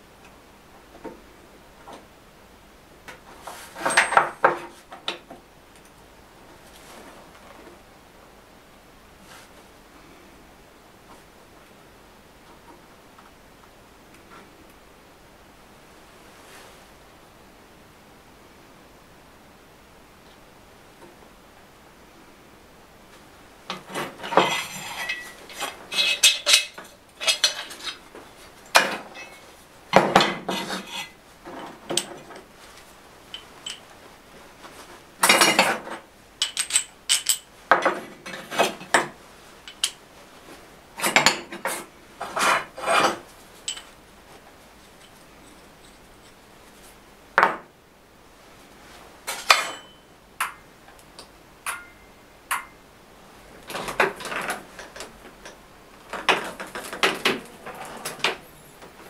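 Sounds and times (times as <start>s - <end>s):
metal tools clinking on workbench: 3.8s - 4.5s, 24.2s - 28.0s, 28.7s - 29.4s, 36.4s - 39.0s, 49.3s - 50.6s.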